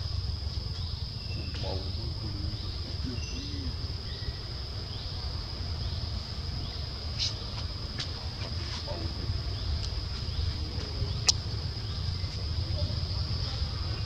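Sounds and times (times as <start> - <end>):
low rumble: 0.0 - 8.4
insects droning: 0.0 - 14.0.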